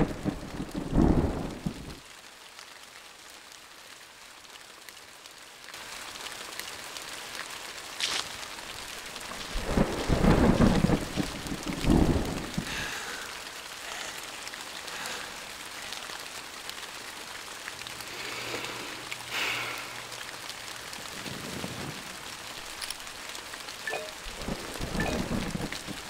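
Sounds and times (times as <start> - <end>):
thunderclap: 0.0 - 2.0, 9.4 - 12.9, 24.2 - 26.0
steady rain falling: 0.0 - 26.0.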